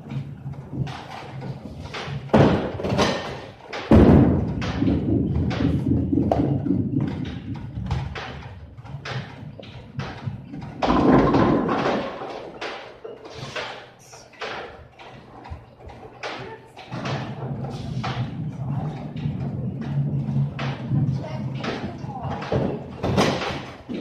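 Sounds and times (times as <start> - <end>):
bowling ball rolling rumble: 0.0 - 13.0, 14.4 - 24.0
bowling balls and pins clattering: 0.0 - 24.0
bowling ball thudding on lane: 3.8 - 8.4.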